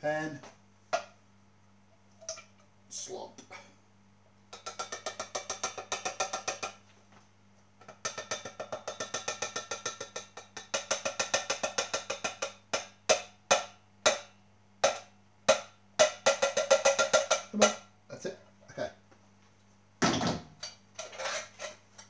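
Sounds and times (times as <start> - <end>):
tin can tapping on saucepan: 4.5 - 6.8, 7.8 - 17.8.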